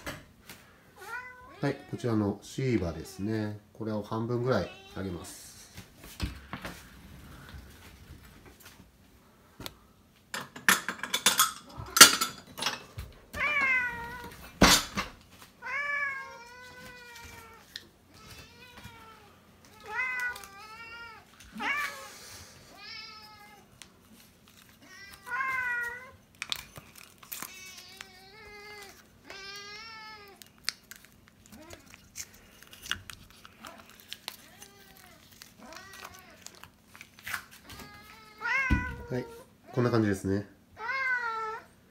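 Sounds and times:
cats meowing: 0:01.0 - 0:03.4, 0:04.4 - 0:05.7, 0:13.2 - 0:14.8, 0:15.6 - 0:23.8, 0:24.8 - 0:30.6, 0:33.4 - 0:36.9, 0:37.6 - 0:40.0, 0:40.7 - 0:41.8.

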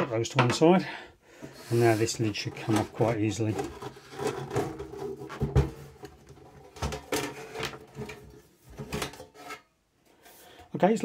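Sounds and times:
metal cover scraping and rubbing: 0:01.4 - 0:09.7.

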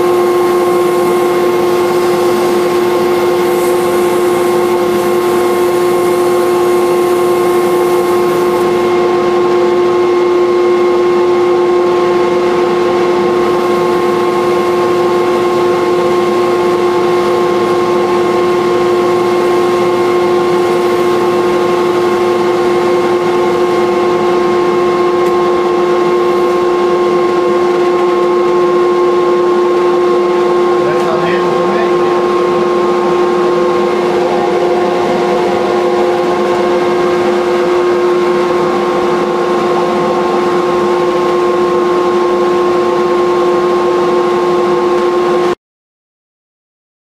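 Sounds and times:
gouge cutting spinning wood: 0:00.0 - 0:09.3, 0:12.5 - 0:28.8, 0:30.6 - 0:42.5
lathe motor whine: 0:00.0 - 0:45.6.

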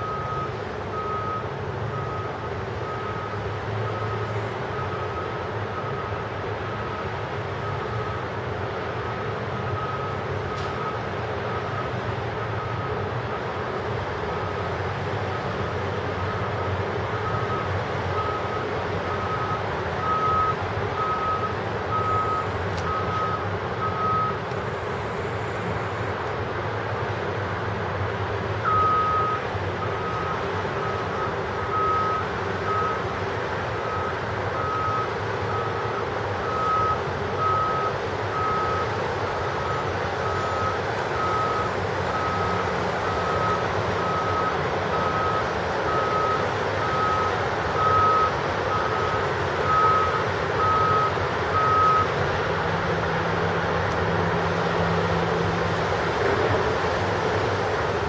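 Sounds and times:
reversing alarm beeping: 0:00.0 - 0:06.2, 0:17.2 - 0:26.3, 0:28.6 - 0:33.0, 0:33.8 - 0:39.0, 0:39.6 - 0:52.1.

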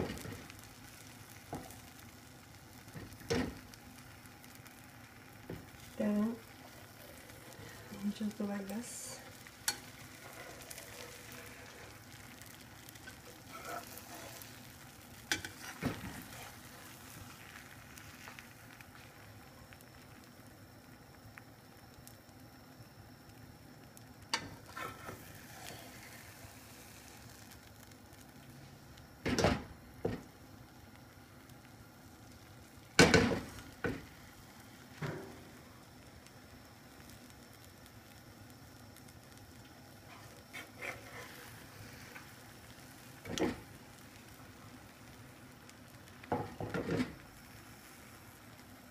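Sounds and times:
egg frying in oil: 0:00.0 - 0:48.9
metal spatula scraping pan: 0:09.6 - 0:12.0, 0:13.0 - 0:14.6, 0:40.1 - 0:42.2.

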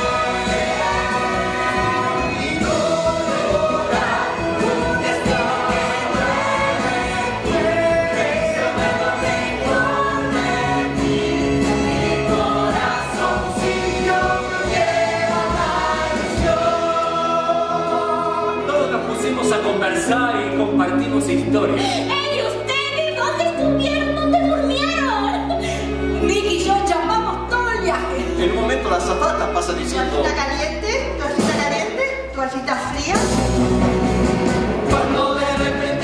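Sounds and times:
cast singing in chorus: 0:00.0 - 0:19.0.

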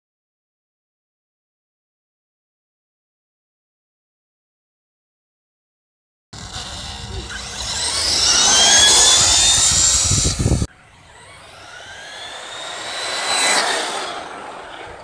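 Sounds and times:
electric rc trucks motors whining: 0:06.4 - 0:15.0.

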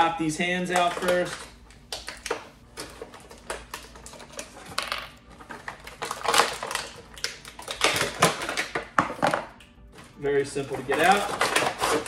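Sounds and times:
plastic blister tray crackling: 0:10.1 - 0:12.0.

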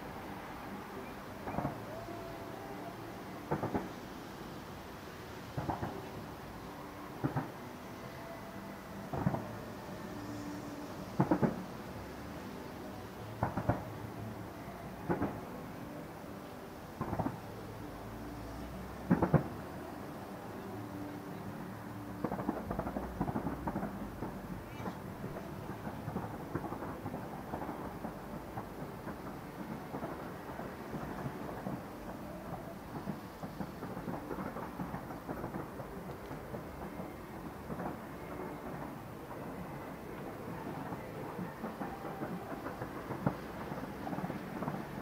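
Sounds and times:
fireworks bursting and crackling: 0:00.0 - 0:45.0
firework shells bursting: 0:09.1 - 0:12.2.

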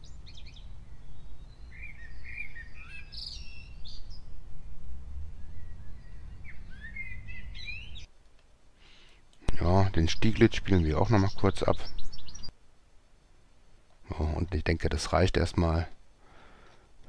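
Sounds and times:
blackbird singing: 0:00.0 - 0:04.4, 0:05.4 - 0:08.1, 0:09.5 - 0:12.6
bird chirps: 0:00.0 - 0:08.1, 0:10.0 - 0:12.6
steady low background rumble: 0:03.4 - 0:08.8.

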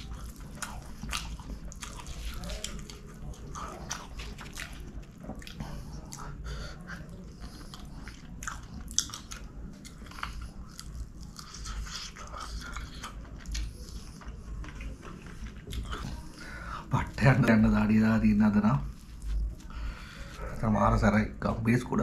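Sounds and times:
lip smacking: 0:00.0 - 0:17.6
wet chewing: 0:00.0 - 0:20.8.

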